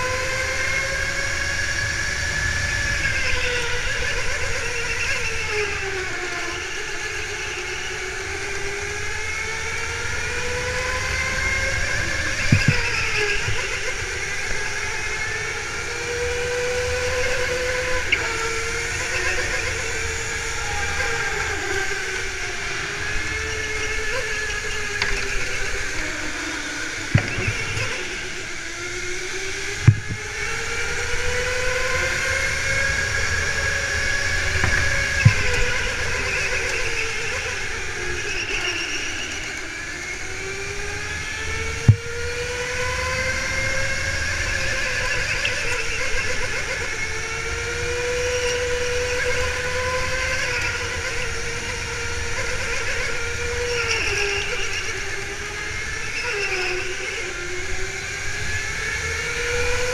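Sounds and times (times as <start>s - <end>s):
go-kart motor whining: 0.0s - 59.9s
low rumble of chassis and tyres: 0.0s - 59.9s
sharp knocks: 12.4s - 13.8s, 27.2s - 28.4s, 29.9s - 30.5s, 34.5s - 37.0s.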